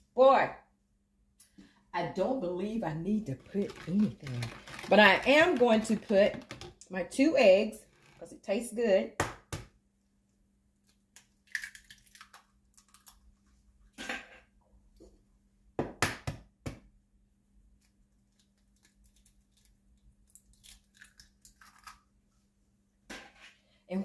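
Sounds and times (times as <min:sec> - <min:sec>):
eggshells cracking: 0:03.4 - 0:06.7, 0:11.2 - 0:13.2, 0:18.4 - 0:22.1.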